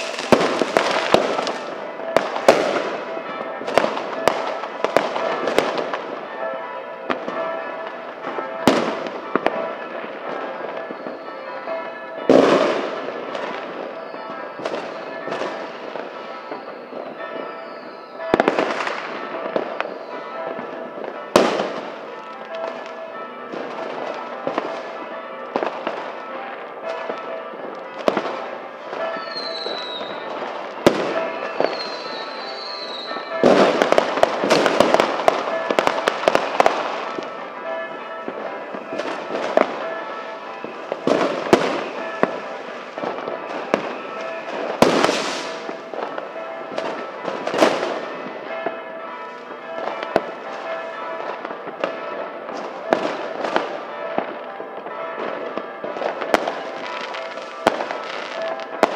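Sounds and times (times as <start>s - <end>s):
firework bangs: 0.0s - 6.3s, 7.1s - 11.3s, 12.2s - 22.9s, 26.9s - 58.9s
firecrackers crackling: 0.0s - 6.4s, 7.1s - 58.9s
high firework whistles: 29.2s - 30.2s, 31.6s - 33.3s.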